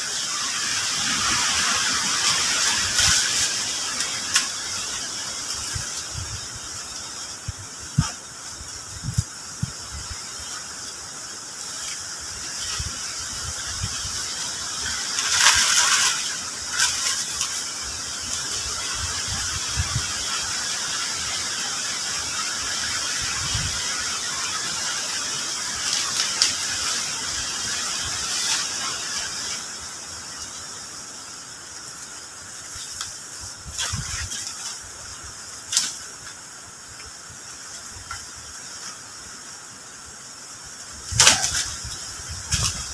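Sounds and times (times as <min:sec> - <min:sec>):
insects droning: 0:00.0 - 0:42.9
dry leaves and branches snapping: 0:01.0 - 0:06.3, 0:11.7 - 0:19.7, 0:24.5 - 0:30.6, 0:31.8 - 0:39.0, 0:41.0 - 0:42.9.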